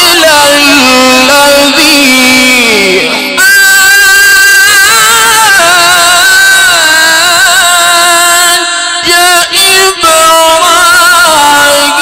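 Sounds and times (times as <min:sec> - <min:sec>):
person reciting melodically: 0:00.0 - 0:12.0.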